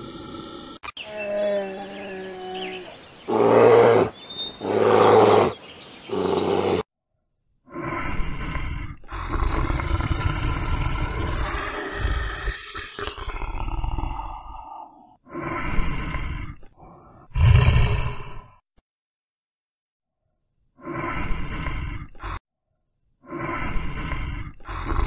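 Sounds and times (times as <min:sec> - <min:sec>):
bear growling: 0:00.0 - 0:06.9, 0:07.7 - 0:18.5, 0:23.2 - 0:25.0
bear moaning call: 0:01.0 - 0:06.8.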